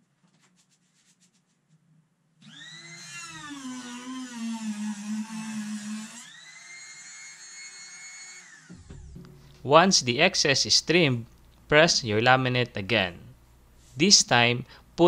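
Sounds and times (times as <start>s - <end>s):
laminate trimmer whining: 2.4s - 9.0s.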